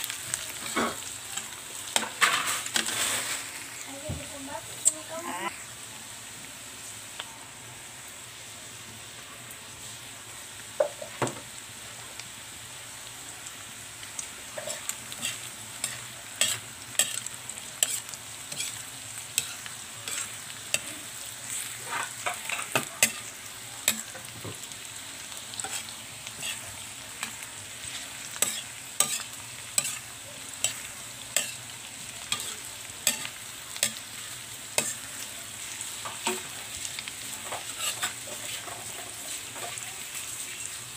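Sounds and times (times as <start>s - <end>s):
stir-fry sizzling: 0.0s - 40.9s
metal turner scraping pan: 1.9s - 3.5s, 14.6s - 23.3s, 25.5s - 30.0s, 30.6s - 31.7s, 37.4s - 39.8s.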